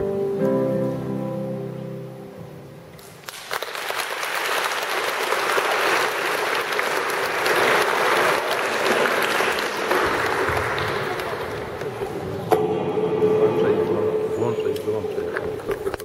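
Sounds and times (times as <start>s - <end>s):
audience applauding: 3.0s - 12.2s.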